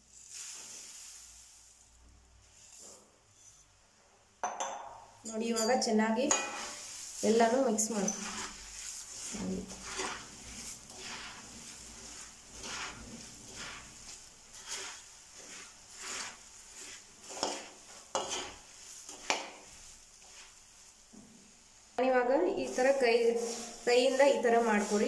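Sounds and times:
spatula stirring puffed rice: 0:00.0 - 0:03.9, 0:05.5 - 0:25.0
spatula clinking against pan: 0:04.4 - 0:06.8.

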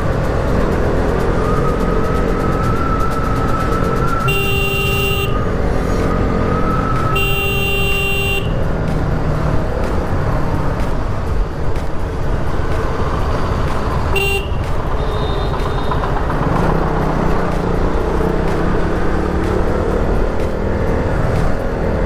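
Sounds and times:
motorcycle engine and road noise: 0:00.0 - 0:22.0
vehicle horn toot: 0:04.1 - 0:05.4, 0:07.1 - 0:08.6, 0:14.1 - 0:16.0.

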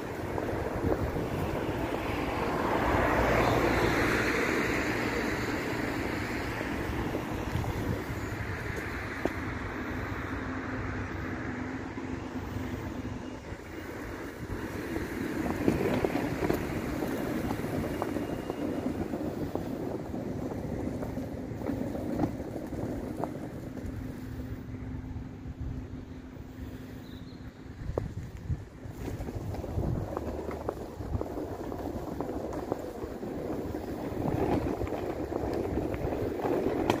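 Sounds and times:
vehicle passing: 0:00.0 - 0:27.0
street traffic noise: 0:00.0 - 0:37.0
wind buffeting microphone: 0:00.0 - 0:37.0.

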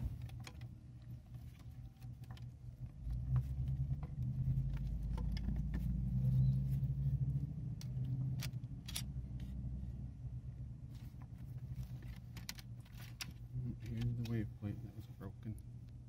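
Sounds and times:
vehicle engine rumble: 0:00.0 - 0:16.0
metallic clicks of clutch plates: 0:00.1 - 0:06.6, 0:07.3 - 0:09.6, 0:11.1 - 0:14.5.

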